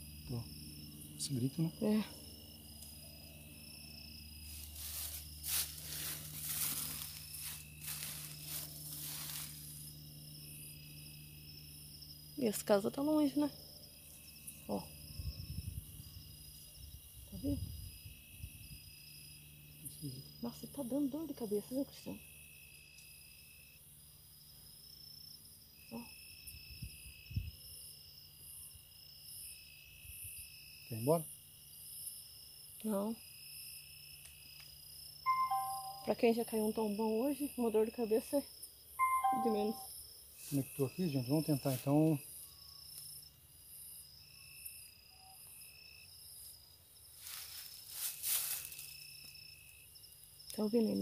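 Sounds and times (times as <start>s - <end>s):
crickets and insects calling: 0.0s - 51.0s
rustling through grass and bushes: 4.4s - 10.0s, 47.1s - 49.3s.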